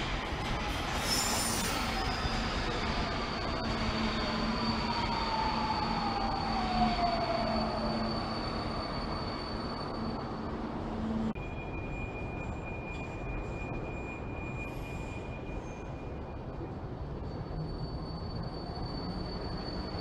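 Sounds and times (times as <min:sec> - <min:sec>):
metro train braking to a stop: 0:00.0 - 0:20.0.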